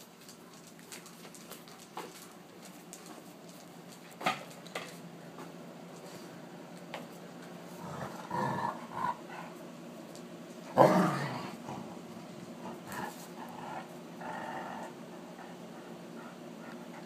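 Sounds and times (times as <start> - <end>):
dogs play growling: 7.6 - 9.8, 10.6 - 17.0.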